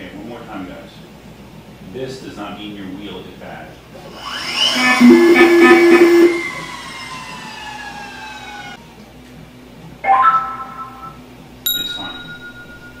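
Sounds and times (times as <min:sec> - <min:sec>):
electric motor whining down: 0:04.1 - 0:08.8
ringing tones: 0:10.0 - 0:13.0.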